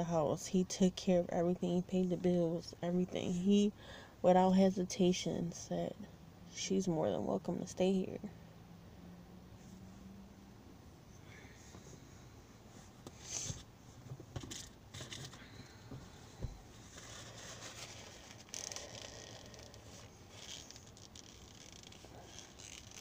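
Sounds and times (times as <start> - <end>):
paper tissue rustling: 16.7 - 23.0.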